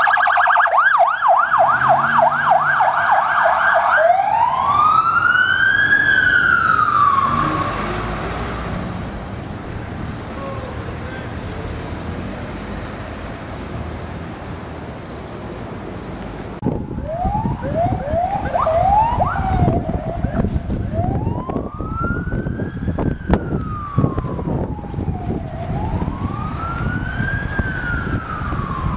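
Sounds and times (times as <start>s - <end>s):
ambulance siren: 0.0s - 8.1s, 16.6s - 28.9s
road traffic: 0.0s - 28.9s.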